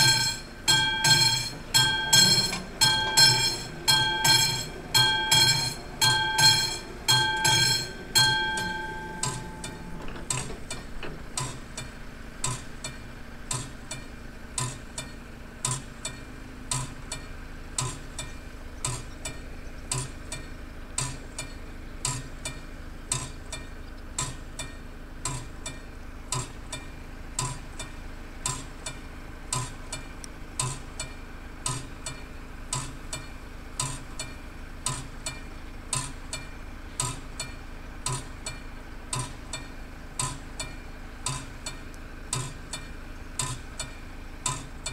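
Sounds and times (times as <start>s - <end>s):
level crossing warning bell: 0.0s - 11.3s.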